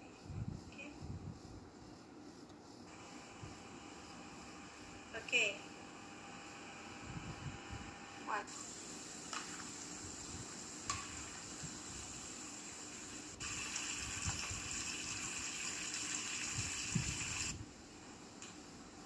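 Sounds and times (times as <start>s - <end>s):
oil sizzling: 8.8s - 17.6s.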